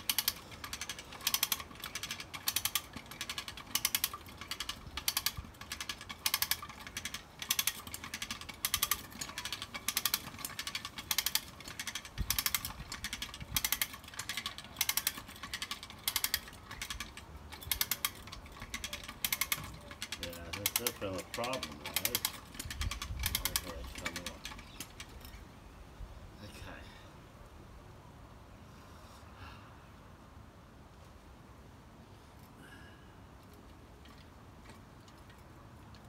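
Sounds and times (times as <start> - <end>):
hand winch ratchet clicking: 0.0 - 25.4.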